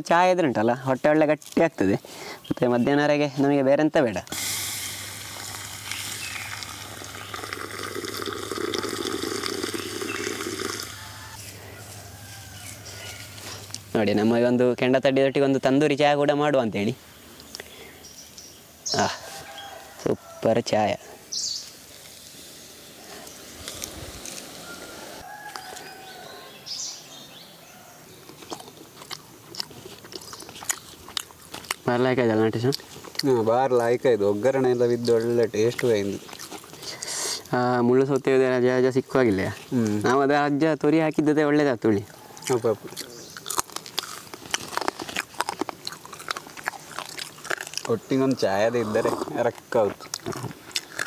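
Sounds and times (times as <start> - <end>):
liquid splashing and frothing: 4.4 - 11.3
tea pouring into clay pot: 4.4 - 11.3
crunchy bites of rice cake: 23.6 - 24.6, 28.2 - 31.8, 35.7 - 37.1, 42.4 - 48.0, 49.9 - 51.0.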